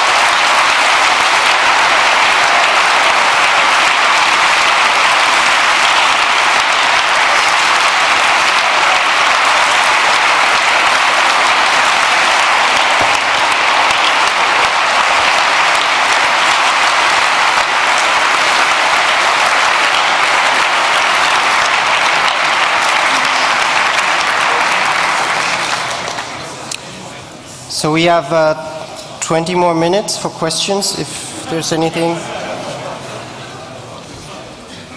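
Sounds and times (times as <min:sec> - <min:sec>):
audience applauding: 0:00.0 - 0:26.8.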